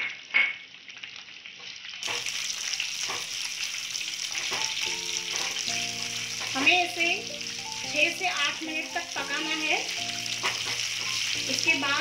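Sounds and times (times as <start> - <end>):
onion sizzling in oil: 0.0 - 12.0
spatula tapping pan: 4.3 - 6.8, 9.9 - 12.0.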